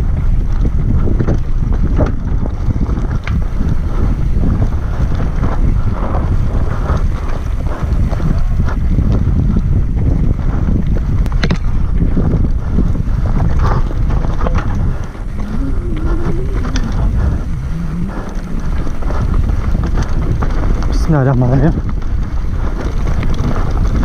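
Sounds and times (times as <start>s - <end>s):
mountain bike rumbling and rattling: 0.0s - 24.0s
wheels knocking on stones: 0.0s - 24.0s
wind buffeting microphone: 0.0s - 24.0s
wavering tone: 15.3s - 19.1s.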